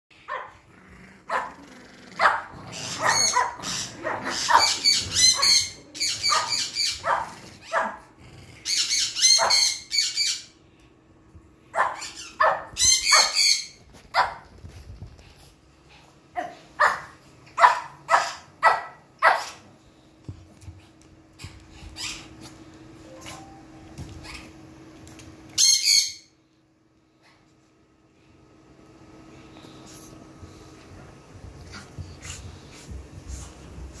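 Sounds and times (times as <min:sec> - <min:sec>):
small dog barking and yipping: 0:00.2 - 0:00.6, 0:02.2 - 0:08.0, 0:08.8 - 0:10.3, 0:11.7 - 0:14.5, 0:16.4 - 0:19.6.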